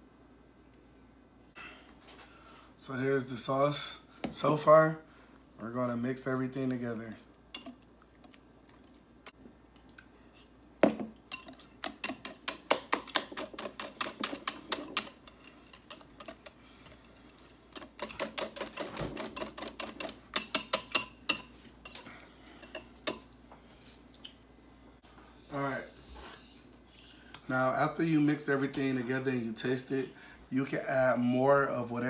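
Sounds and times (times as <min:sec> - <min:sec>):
whisk tapping: 0:11.3 - 0:16.4.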